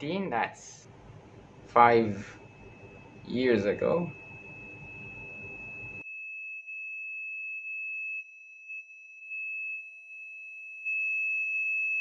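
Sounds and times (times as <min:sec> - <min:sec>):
high-pitched pure tone: 0:00.7 - 0:06.0
faint lower tone: 0:00.8 - 0:07.3.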